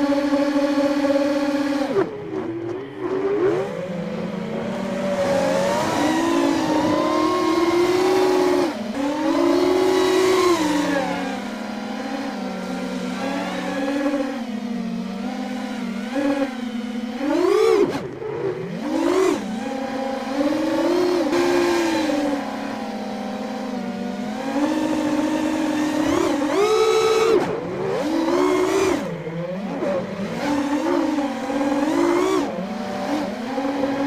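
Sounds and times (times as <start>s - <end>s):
drone motors whining: 0.0s - 34.0s.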